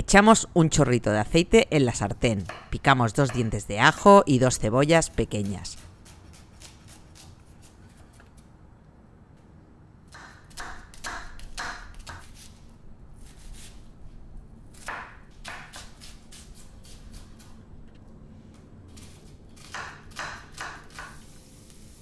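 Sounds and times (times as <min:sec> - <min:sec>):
knife chopping on wooden board: 0:02.4 - 0:03.6, 0:10.1 - 0:12.5, 0:14.7 - 0:16.4, 0:19.6 - 0:21.2.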